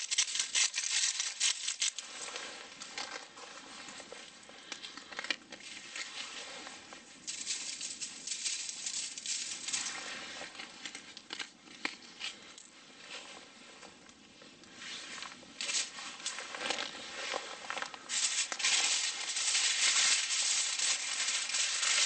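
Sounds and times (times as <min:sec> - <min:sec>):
seasoning grains pattering on foil: 0:00.0 - 0:02.0, 0:07.2 - 0:10.0, 0:18.1 - 0:22.0
aluminium foil crinkling: 0:00.0 - 0:06.6, 0:07.2 - 0:12.7, 0:15.6 - 0:22.0.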